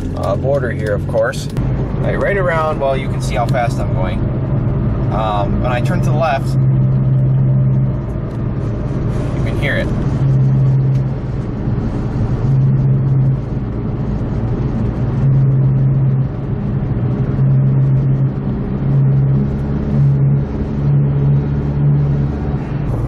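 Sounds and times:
car engine: 0:00.0 - 0:23.0
road noise: 0:00.0 - 0:23.0
wheel bearing humming drone: 0:00.0 - 0:23.0.

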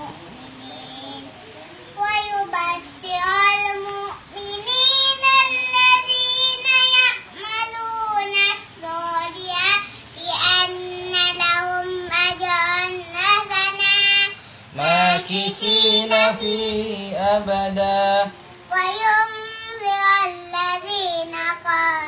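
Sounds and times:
adult voice chanting: 0:00.0 - 0:22.0
boy chanting: 0:00.0 - 0:22.0.

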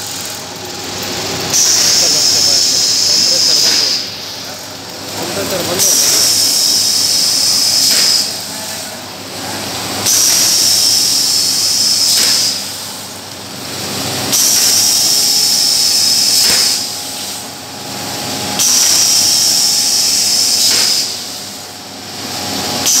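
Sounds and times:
cutting machine hissing and whining: 0:00.0 - 0:23.0.

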